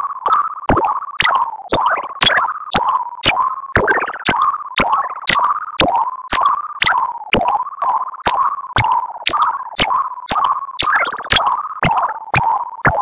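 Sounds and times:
synthetic chirps: 1.2s - 2.5s, 10.3s - 12.2s.

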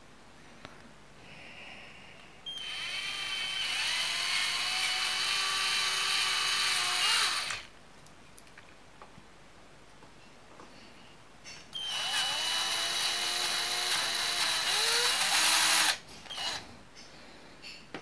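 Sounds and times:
cordless drill whining: 2.5s - 7.7s, 11.8s - 16.7s.

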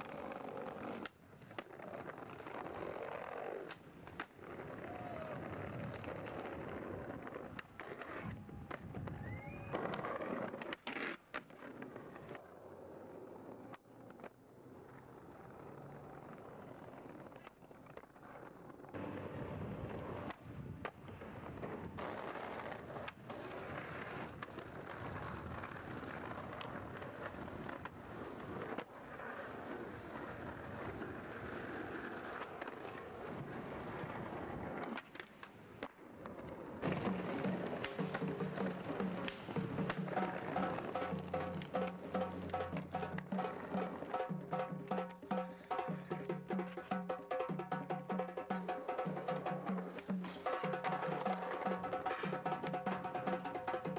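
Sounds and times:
skateboard clacking: 0.0s - 53.9s
skateboard wheels rolling on pavement: 0.0s - 53.9s.

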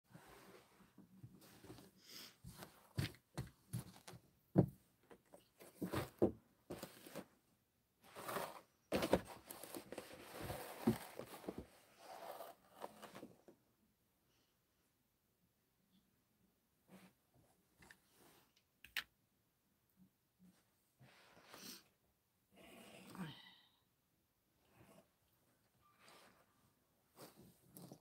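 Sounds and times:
rustling and scraping: 5.2s - 7.4s, 8.0s - 13.5s
cardboard box handled: 8.1s - 13.3s.

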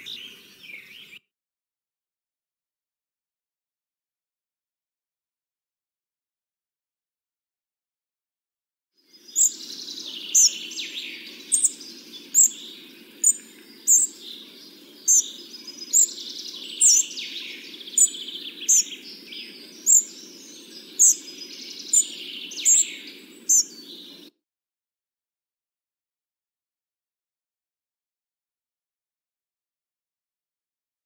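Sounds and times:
background birdsong: 0.0s - 1.3s, 9.0s - 24.4s.

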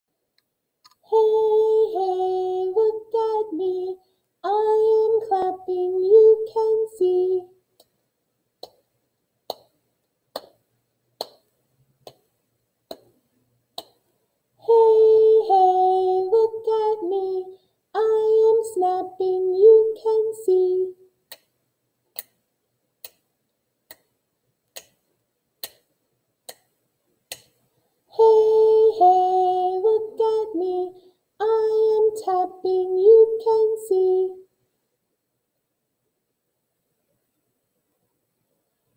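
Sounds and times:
woman singing children's song: 0.9s - 7.6s, 14.6s - 21.0s, 28.1s - 34.5s
soft hand claps: 9.5s - 10.6s, 11.2s - 12.3s.

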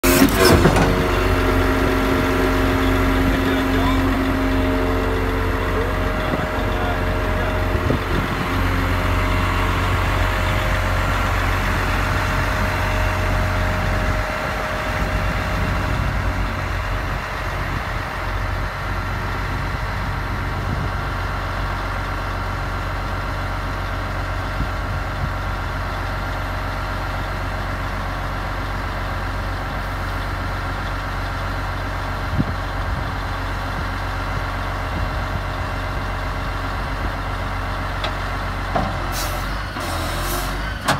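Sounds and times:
high steady tone: 0.0s - 16.5s
diesel truck engine idling: 0.0s - 40.9s.

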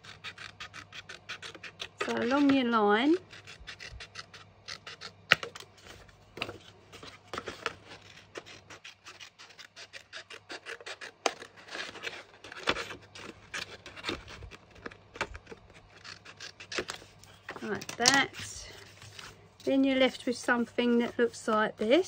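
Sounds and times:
scissors snipping cardstock: 0.0s - 5.7s.

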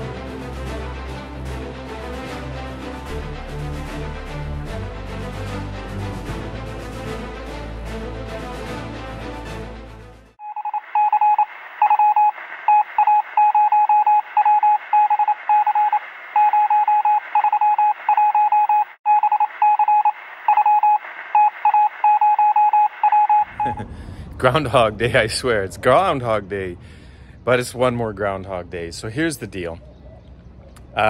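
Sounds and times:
intro music: 0.0s - 10.4s
morse code beeps over radio: 10.4s - 23.8s.

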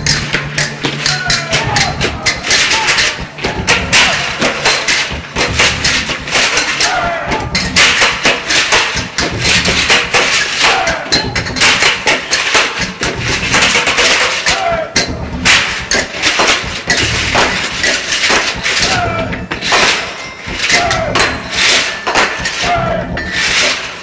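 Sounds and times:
music: 0.0s - 24.0s
strikes on metal barrels: 0.0s - 24.0s
voices: 0.6s - 5.9s, 6.5s - 7.8s, 10.5s - 11.6s, 13.9s - 16.6s, 17.4s - 23.3s.

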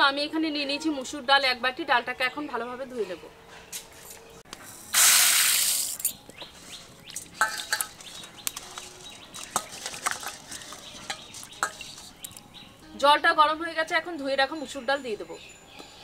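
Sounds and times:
lentils pouring into a bowl: 4.9s - 6.0s.

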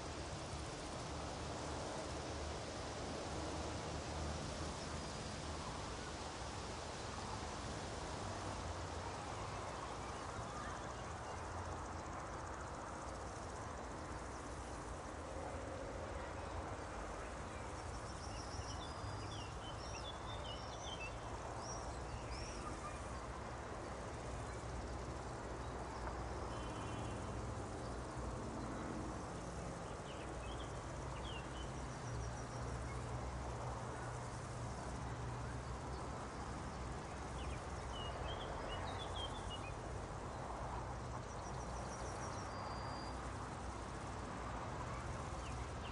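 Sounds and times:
outdoor background hiss: 0.0s - 45.9s
insect trills: 16.8s - 44.1s
faint bird chirps: 17.5s - 23.2s, 26.5s - 27.2s, 41.3s - 43.2s.

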